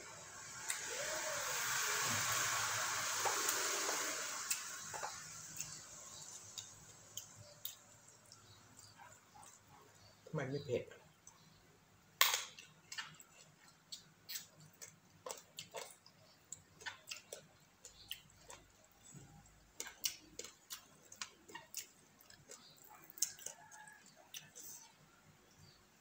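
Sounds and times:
wet chewing and lip smacks: 12.6s - 24.9s.

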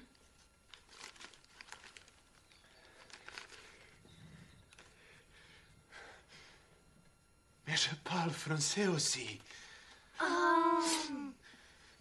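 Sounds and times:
paper rustling and clicking: 0.7s - 4.0s, 4.7s - 5.0s.

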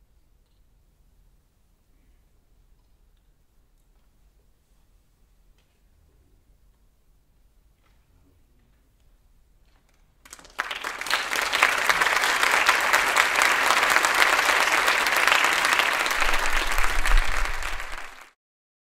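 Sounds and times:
audience applause: 10.2s - 18.4s.

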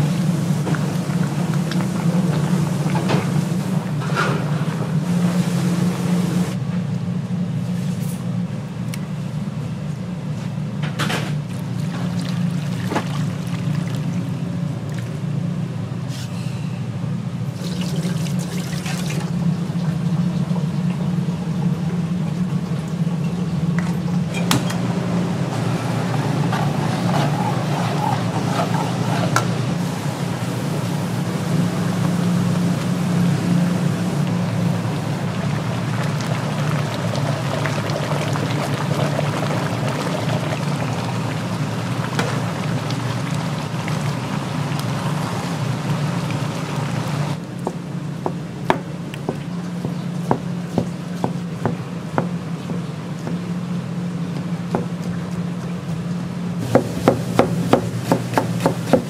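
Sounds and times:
steady low hum: 0.0s - 59.0s
water splashing and pouring: 11.6s - 14.3s, 17.5s - 20.0s, 34.2s - 47.4s.

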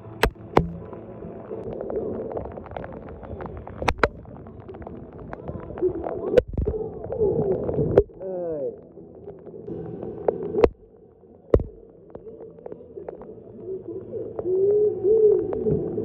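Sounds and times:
sharp taps: 0.0s - 0.9s, 11.6s - 11.8s.

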